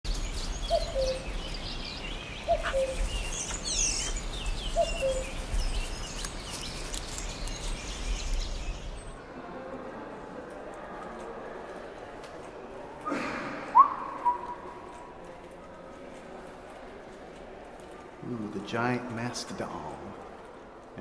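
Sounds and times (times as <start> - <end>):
low falling bird call: 0.1 - 9.0, 13.1 - 15.2
birds chirping: 0.1 - 9.2, 13.7 - 15.2.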